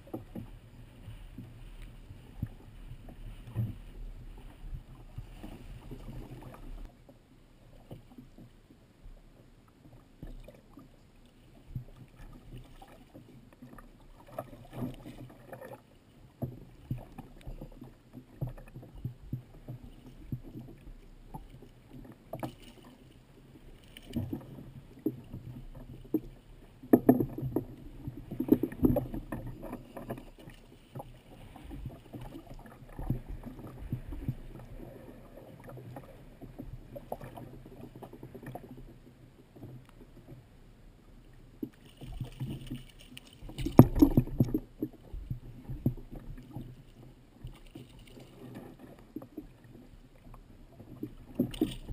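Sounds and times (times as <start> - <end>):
water lapping against kayak hull: 0.0 - 51.9
knocks and splashes: 23.8 - 34.9, 41.6 - 46.6, 50.9 - 51.9.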